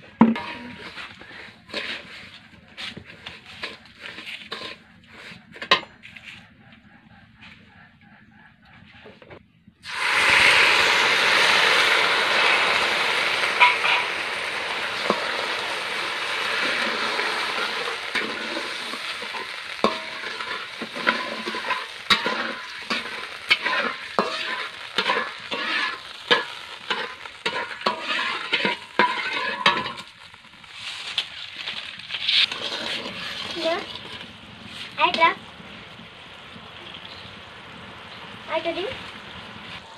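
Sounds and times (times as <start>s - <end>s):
syrup sizzling in a wok: 0.0s - 5.3s, 9.8s - 39.9s
metal spatula scraping a wok: 0.0s - 6.4s, 11.8s - 35.3s.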